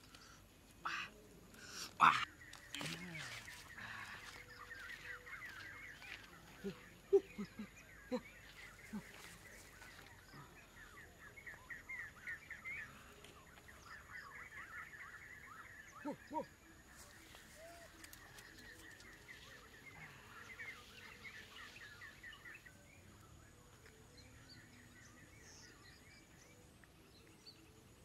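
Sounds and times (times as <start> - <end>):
birds chirping: 0.0 - 28.0.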